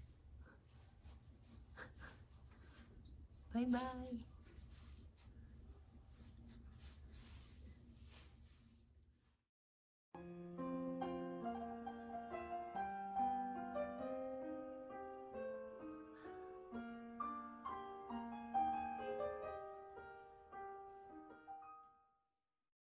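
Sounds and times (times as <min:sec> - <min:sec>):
piano melody over held notes: 0:10.2 - 0:22.1.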